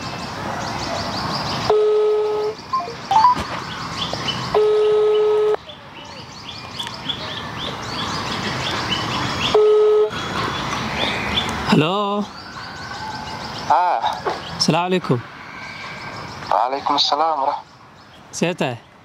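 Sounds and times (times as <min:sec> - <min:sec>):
birds chirping: 0:00.0 - 0:19.0
phone ringback tone beeps: 0:01.7 - 0:03.4, 0:04.6 - 0:05.6, 0:09.6 - 0:10.1.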